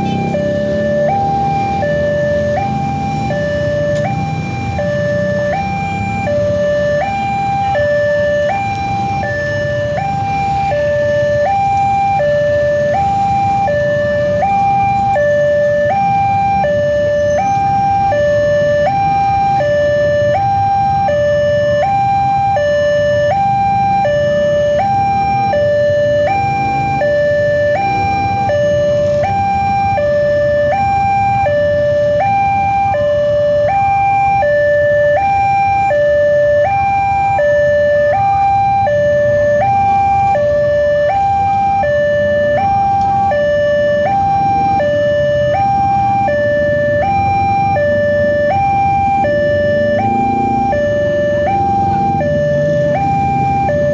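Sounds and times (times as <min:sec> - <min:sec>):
level crossing two-tone alarm: 0:00.0 - 0:53.9.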